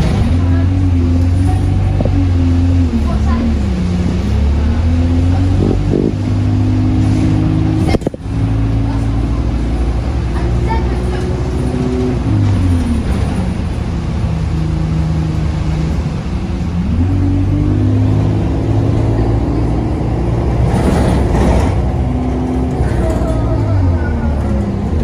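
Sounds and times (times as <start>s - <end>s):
bus engine and drivetrain: 0.0s - 25.0s.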